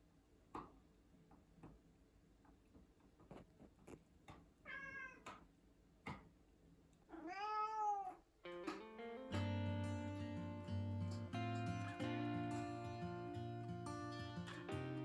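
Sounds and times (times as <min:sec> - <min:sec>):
cat meowing: 0:04.7 - 0:05.4, 0:07.1 - 0:08.3
guitar music: 0:08.4 - 0:15.0.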